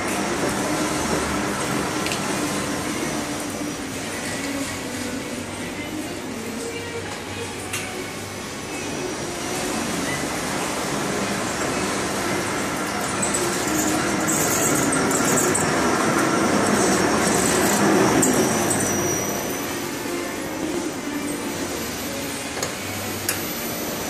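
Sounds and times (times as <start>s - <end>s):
machine mechanical whir: 8.0s - 24.0s
high-pitched squeaks: 12.9s - 19.8s.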